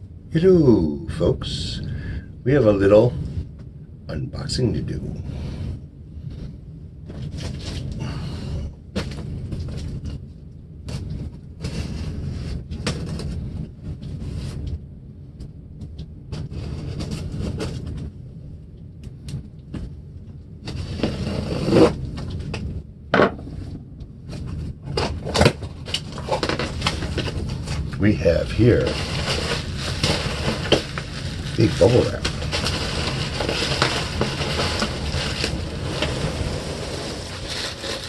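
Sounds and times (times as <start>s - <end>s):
cardboard scraping and rustling: 11.6s - 13.5s, 16.4s - 18.0s, 20.6s - 22.5s, 23.4s - 38.0s.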